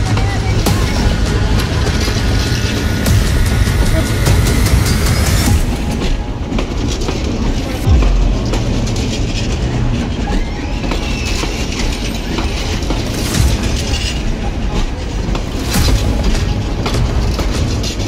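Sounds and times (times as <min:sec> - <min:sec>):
train wheels rumbling and clacking: 0:00.0 - 0:18.0.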